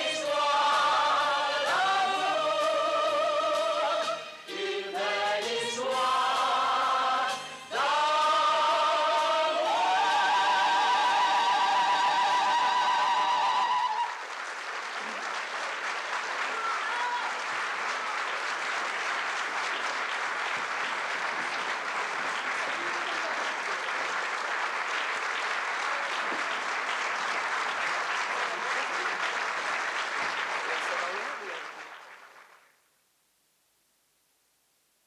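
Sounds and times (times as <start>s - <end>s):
audience applauding: 9.5s - 32.8s.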